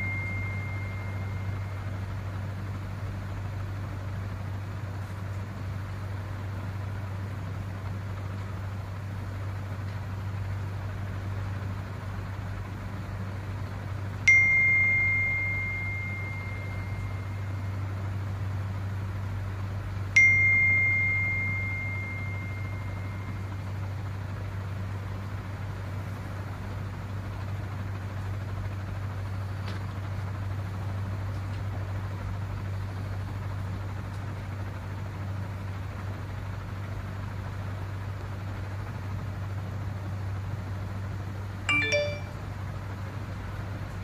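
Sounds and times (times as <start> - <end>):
phone notification chime: 0.0 - 1.6, 14.3 - 17.1, 20.2 - 23.1, 41.7 - 42.4
low hum: 0.0 - 7.0, 13.9 - 18.7, 20.0 - 24.3.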